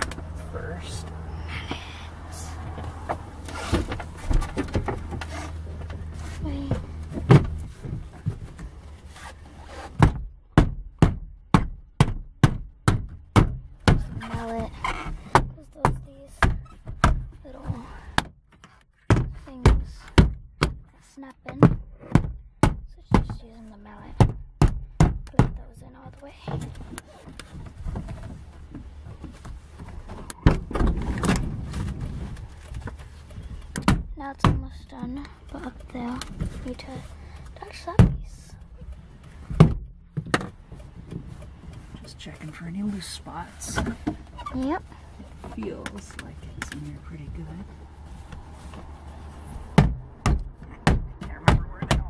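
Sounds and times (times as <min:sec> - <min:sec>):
loud knocks on plastic panel: 0:10.0 - 0:14.2, 0:49.8 - 0:52.0.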